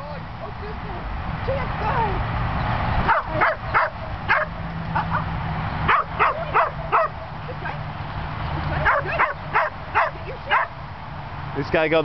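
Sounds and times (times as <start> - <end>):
dog yipping: 3.0 - 5.3, 5.9 - 7.3, 8.7 - 10.8.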